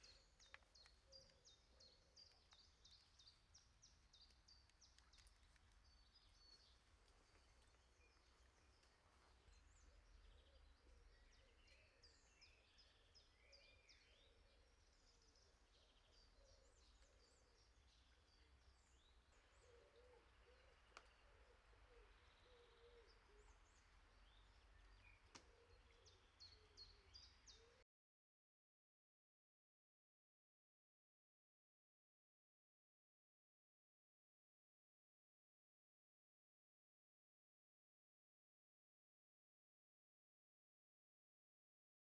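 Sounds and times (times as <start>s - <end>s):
small birds chirping: 0.0s - 27.8s.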